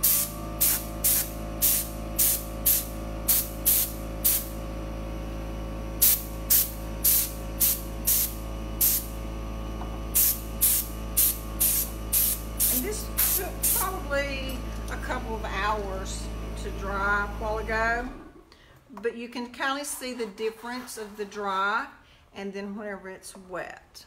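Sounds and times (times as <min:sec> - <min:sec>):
paint sprayer hissing: 0:00.0 - 0:04.6, 0:06.0 - 0:09.2, 0:09.8 - 0:15.0
steady even hum: 0:00.0 - 0:19.0.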